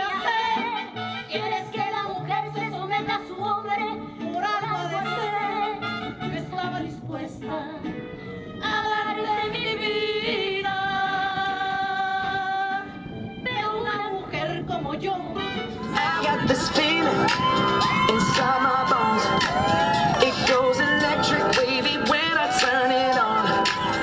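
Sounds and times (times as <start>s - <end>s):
instrumental backing: 0.0s - 10.3s, 12.8s - 24.0s
woman singing into microphone: 0.0s - 24.0s.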